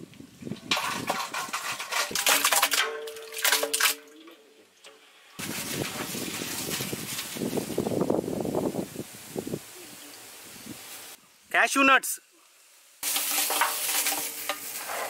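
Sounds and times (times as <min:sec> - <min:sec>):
scraping against metal pot: 0:00.6 - 0:06.8, 0:13.0 - 0:15.0
steady hiss: 0:04.9 - 0:15.0.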